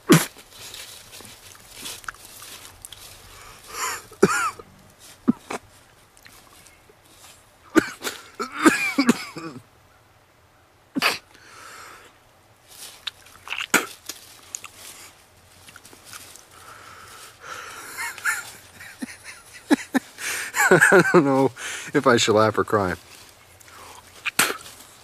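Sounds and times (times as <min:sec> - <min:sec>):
man gagging and coughing: 0:03.8 - 0:05.6, 0:07.7 - 0:09.6.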